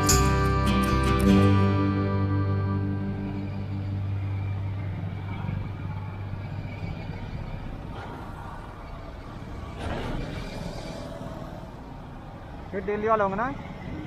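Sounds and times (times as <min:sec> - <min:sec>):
background music: 0:00.0 - 0:08.6
road and vehicle noise: 0:00.0 - 0:14.0.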